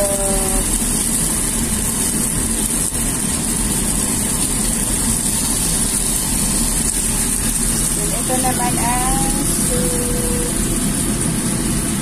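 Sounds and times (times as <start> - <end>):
chicken wings sizzling in oil: 0.0 - 12.0
low mechanical hum: 0.0 - 12.0.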